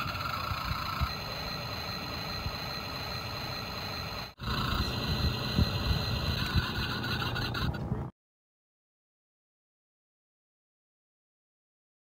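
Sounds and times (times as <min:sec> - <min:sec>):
toy excavator electric whine: 0:00.0 - 0:07.8.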